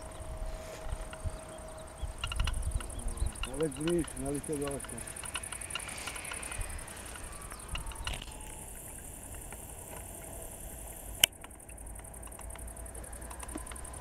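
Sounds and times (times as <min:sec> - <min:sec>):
faint outdoor background noise: 0:00.0 - 0:14.0
light ticks: 0:02.2 - 0:14.0
sharp click: 0:04.7 - 0:08.6.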